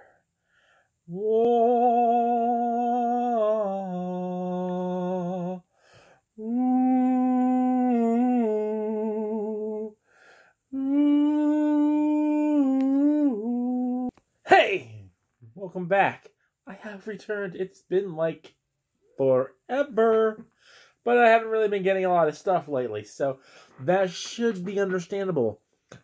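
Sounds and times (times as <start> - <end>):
breaths: 0.0 - 1.1, 5.7 - 6.4, 10.0 - 10.7, 20.5 - 21.0, 23.4 - 23.8
man humming a slow tune: 1.1 - 5.7, 6.4 - 10.0, 10.7 - 14.1.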